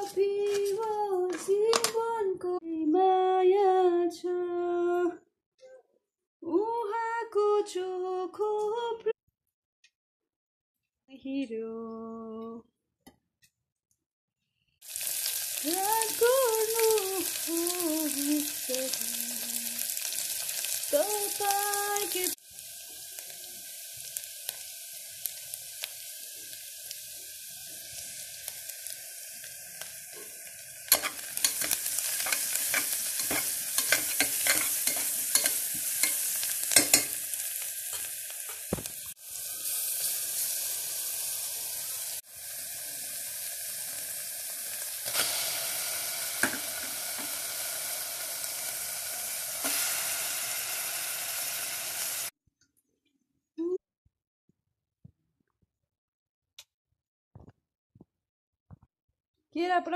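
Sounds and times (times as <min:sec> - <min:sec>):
onions sizzling in a pot: 0:00.0 - 0:01.9, 0:14.8 - 0:52.4
ladle scraping against pot: 0:30.9 - 0:36.2.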